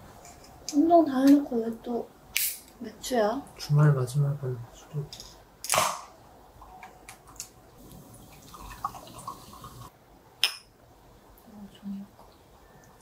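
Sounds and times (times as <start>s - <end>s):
drink pouring into a glass: 7.8s - 9.9s.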